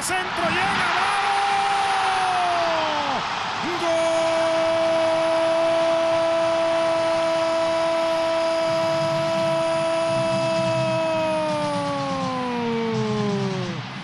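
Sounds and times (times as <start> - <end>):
crowd noise: 0.0 - 14.0
commentator shouting goal call: 3.6 - 13.8.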